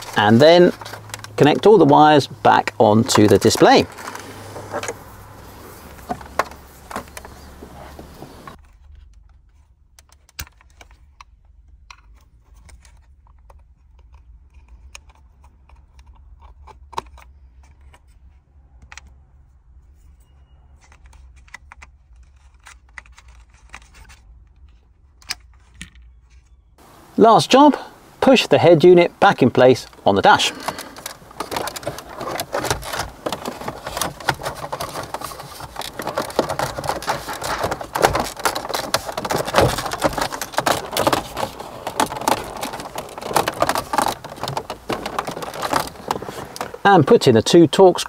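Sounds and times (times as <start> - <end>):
plastic plugs clicking: 0.0 - 5.0, 29.0 - 48.0.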